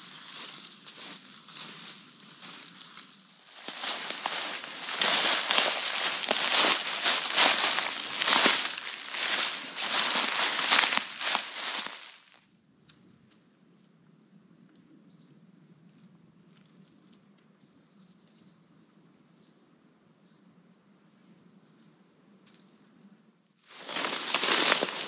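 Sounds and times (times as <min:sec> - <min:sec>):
footsteps crunching dry leaves: 0:00.0 - 0:12.4, 0:23.7 - 0:25.0.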